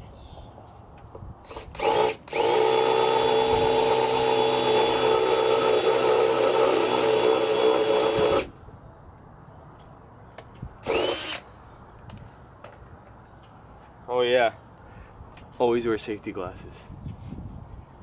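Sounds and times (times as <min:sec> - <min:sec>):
cordless drill drilling rivets: 0:01.4 - 0:08.5, 0:10.8 - 0:11.5.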